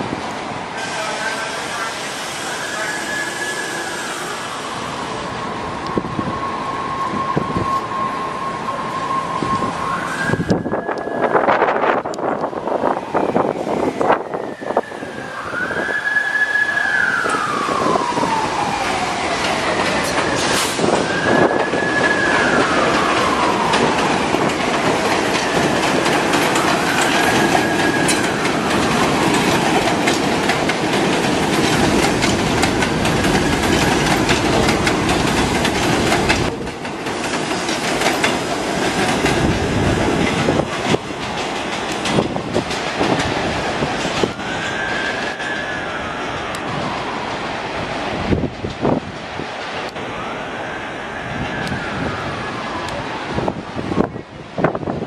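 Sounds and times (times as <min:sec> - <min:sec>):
subway train rumble and clatter: 0:00.0 - 0:55.0.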